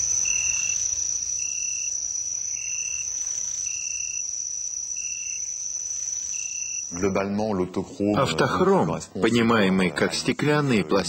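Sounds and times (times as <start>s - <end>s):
insect chirping low: 0.0s - 7.4s
insects trilling: 0.0s - 11.0s.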